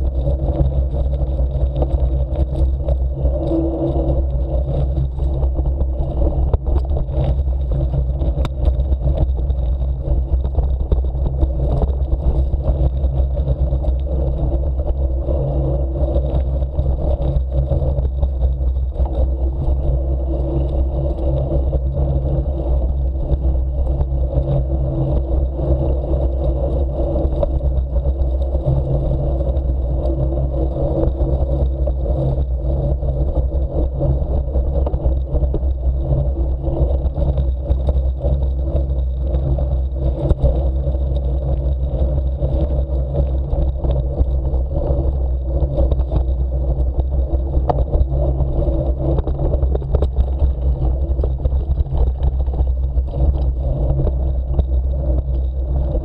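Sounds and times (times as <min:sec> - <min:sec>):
bicycle tyres rolling on track: 0:00.0 - 0:56.0
wind rush on camera: 0:00.0 - 0:56.0.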